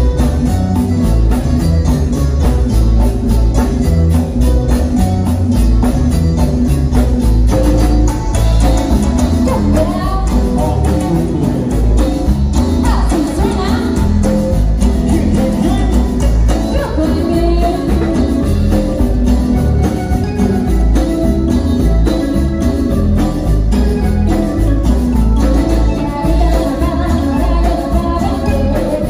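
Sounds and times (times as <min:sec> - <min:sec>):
accordion: 0:00.0 - 0:29.0
latin band music: 0:00.0 - 0:29.0
person singing: 0:09.5 - 0:12.2, 0:12.8 - 0:18.8, 0:25.7 - 0:29.0.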